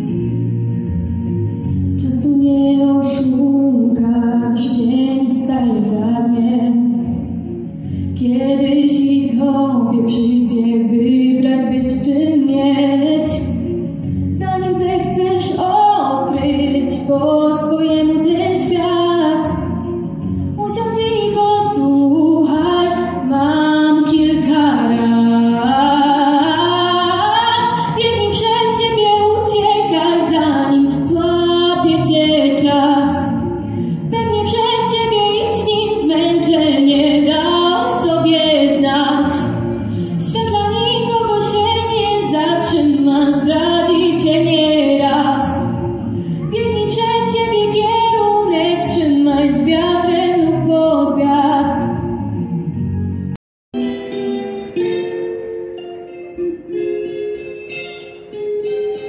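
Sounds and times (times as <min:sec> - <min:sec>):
woman singing: 0:02.0 - 0:07.3, 0:08.1 - 0:13.7, 0:14.3 - 0:19.8, 0:20.6 - 0:52.0.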